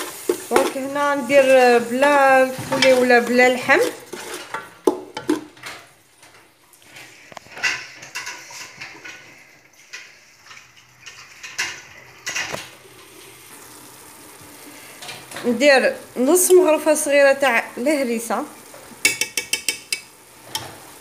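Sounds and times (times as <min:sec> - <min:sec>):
wooden spoon scraping a pot: 0:00.0 - 0:05.8, 0:06.8 - 0:12.7
onions sizzling: 0:00.0 - 0:21.0.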